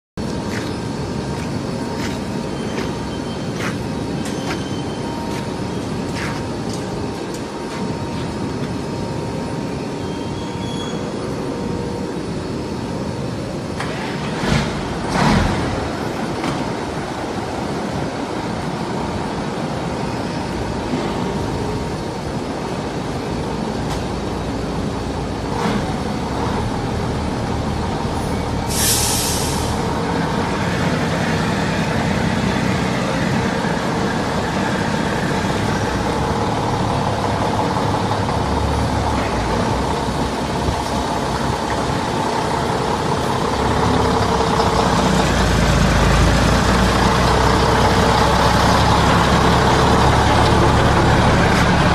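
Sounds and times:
diesel truck engine running: 0.2s - 10.1s, 11.1s - 51.9s
air brakes hissing: 28.6s - 30.0s.

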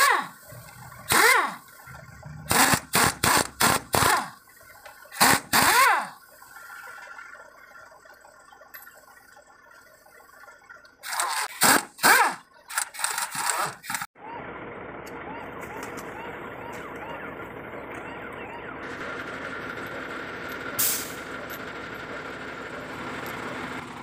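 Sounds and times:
pneumatic impact wrench bursts: 0.0s - 1.7s, 2.4s - 4.4s, 5.1s - 6.2s, 11.0s - 14.1s, 20.8s - 21.2s.

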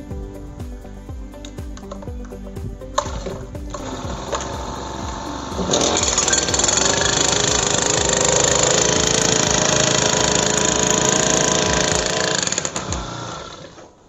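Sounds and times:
petrol engine running: 3.0s - 13.6s.

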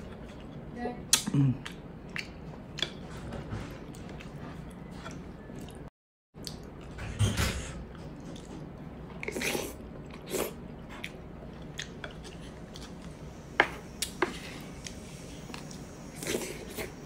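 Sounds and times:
wet chewing and lip smacks: 1.1s - 3.0s.

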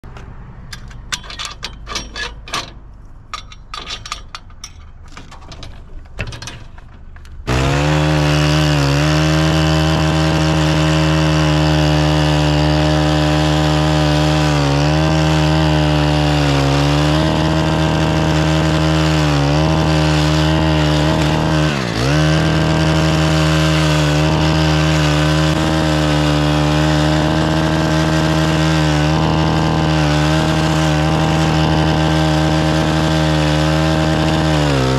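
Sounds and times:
clicks and knocks: 0.0s - 7.5s
gas-powered edger running: 7.2s - 34.9s.

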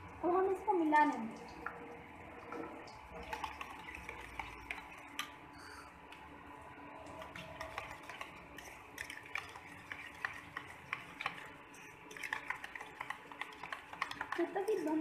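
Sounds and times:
metal spoon beating batter in bowl: 3.2s - 5.3s, 7.0s - 15.0s.

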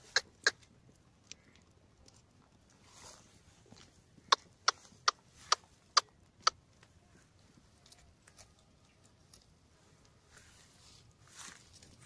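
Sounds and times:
tongue clicks: 0.1s - 0.6s, 4.3s - 6.6s.

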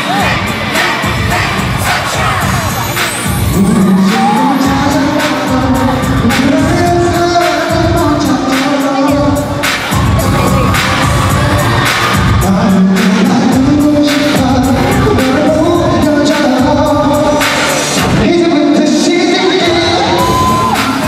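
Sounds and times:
pop backing track: 0.0s - 21.0s
man singing into microphone: 3.5s - 11.4s, 12.4s - 21.0s.

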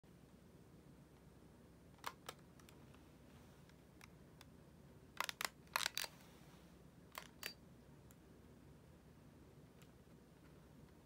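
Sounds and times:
plastic object clicking: 5.2s - 6.1s.

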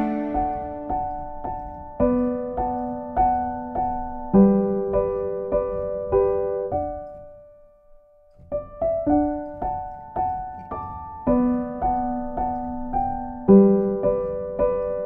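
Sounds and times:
slow piano notes: 0.0s - 15.0s.

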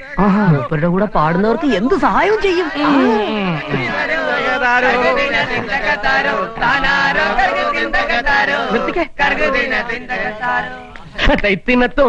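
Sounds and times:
men singing folk song: 1.4s - 11.0s.

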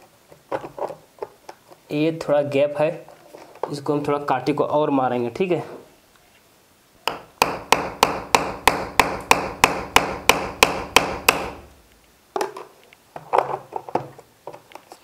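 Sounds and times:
hammer striking nail: 7.1s - 11.7s.

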